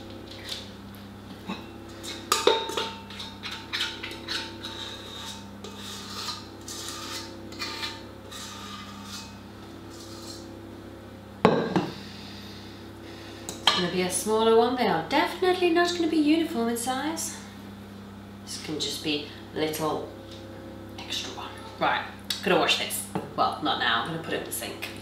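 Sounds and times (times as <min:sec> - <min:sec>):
spoon scraping metal bowl: 0:01.9 - 0:10.5.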